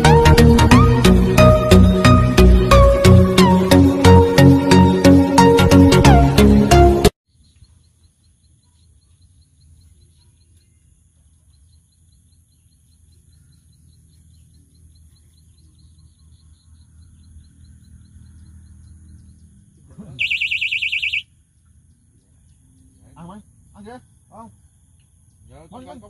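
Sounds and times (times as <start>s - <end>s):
faint chirps: 7.3s - 26.0s
rapid electronic beeping: 20.2s - 21.2s.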